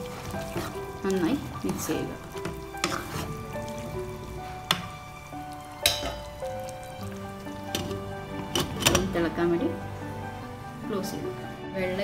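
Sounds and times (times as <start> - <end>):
background music with held notes: 0.0 - 12.0
glass lid clinking on pan: 5.8 - 6.2.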